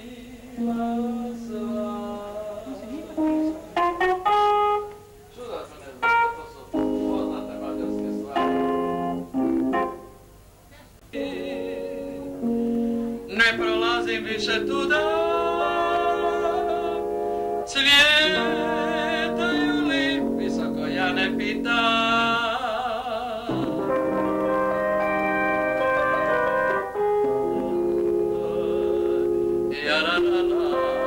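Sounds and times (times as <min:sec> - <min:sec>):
person singing with vibrato: 0:00.0 - 0:04.8, 0:11.1 - 0:31.0
electronic keyboard chords: 0:00.6 - 0:05.4, 0:06.0 - 0:10.5, 0:11.1 - 0:22.8, 0:23.5 - 0:31.0.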